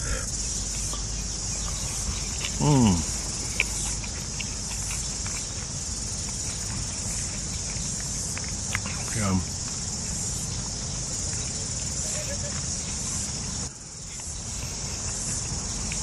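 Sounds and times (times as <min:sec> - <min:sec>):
insects chorus: 0:00.0 - 0:16.0
man humming mmm while eating: 0:02.4 - 0:03.7.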